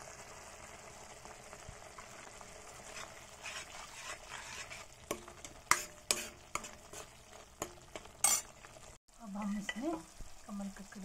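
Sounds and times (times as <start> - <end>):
masala sizzling in a pan: 0.0 - 11.0
metal ladle scraping pan: 2.8 - 8.7.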